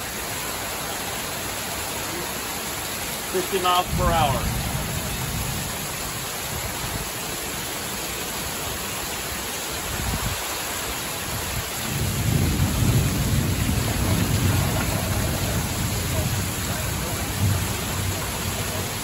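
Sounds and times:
heavy rain pouring: 0:00.0 - 0:19.0
low rumble of thunder: 0:03.9 - 0:07.1, 0:11.4 - 0:19.0.

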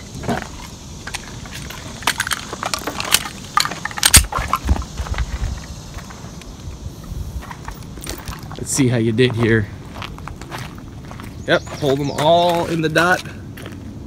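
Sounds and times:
pistol slide metallic clacks: 0:01.1 - 0:04.6.

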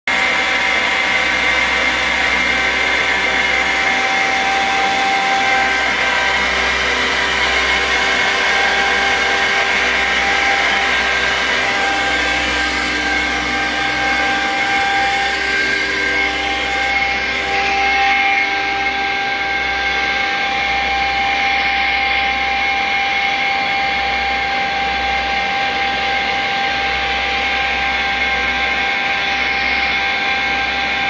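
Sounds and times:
screw compressor running: 0:00.1 - 0:26.0
high whining tones: 0:00.1 - 0:26.2.

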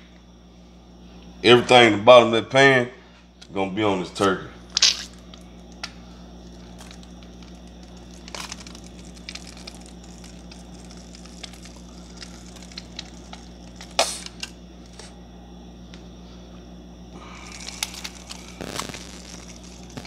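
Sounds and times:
steady low hum: 0:00.0 - 0:20.0
squeeze bottle squishing: 0:04.7 - 0:05.4, 0:06.4 - 0:15.1, 0:17.4 - 0:20.0
squeeze bottle sputter: 0:06.8 - 0:15.1.

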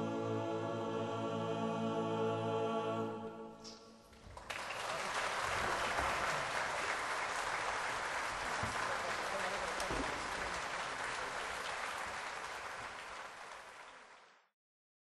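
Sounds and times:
a cappella group singing chord: 0:00.0 - 0:03.8
audience applause: 0:04.2 - 0:14.5.

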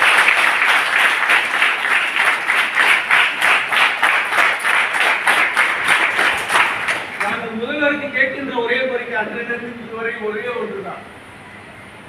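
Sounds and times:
crowd clapping in rhythm: 0:00.0 - 0:07.4.

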